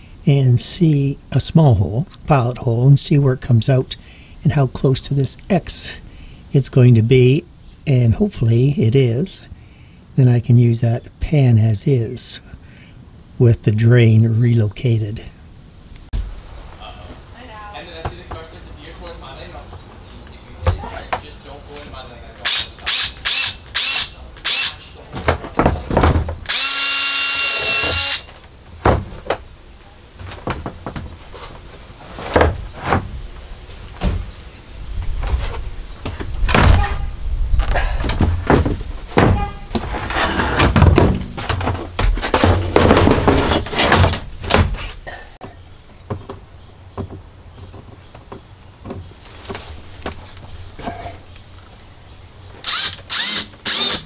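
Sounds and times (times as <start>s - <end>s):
cordless drill whining: 22.9s - 24.8s, 26.5s - 28.3s, 52.6s - 54.0s
knocks and thumps of handling: 25.1s - 26.5s, 28.7s - 29.5s, 30.2s - 33.2s, 33.9s - 34.4s, 35.0s - 51.2s.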